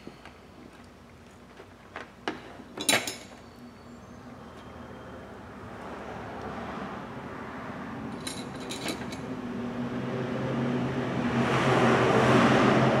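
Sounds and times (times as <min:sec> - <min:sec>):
passing vehicle engine: 0:04.4 - 0:13.0.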